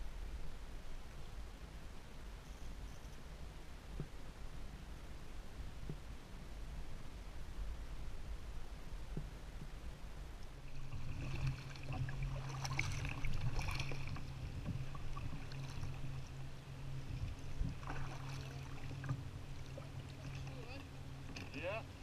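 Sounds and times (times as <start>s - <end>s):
steady low hum: 0.0s - 22.0s
water lapping along hull: 0.0s - 22.0s
paddle strokes splashing: 10.5s - 22.0s.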